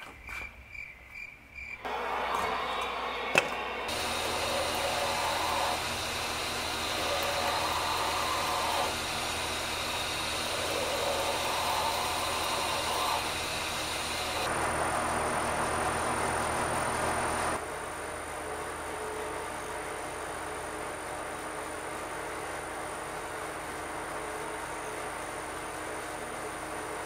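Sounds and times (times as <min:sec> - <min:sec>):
belt grinder grinding: 0:01.9 - 0:14.6.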